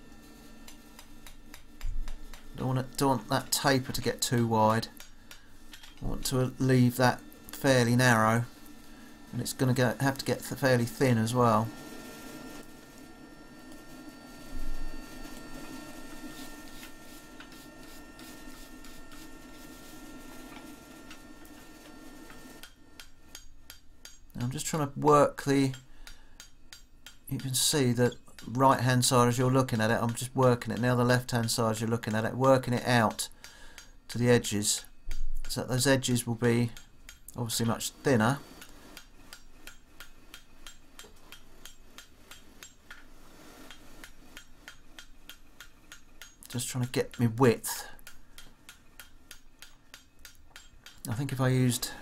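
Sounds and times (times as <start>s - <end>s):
steady low hum: 0.0s - 52.0s
wire brush scratching hot iron: 0.0s - 52.0s
hammer striking hot steel on anvil: 0.6s - 6.3s, 22.3s - 24.3s, 25.6s - 27.6s, 28.3s - 28.6s, 38.6s - 43.0s, 43.7s - 51.1s.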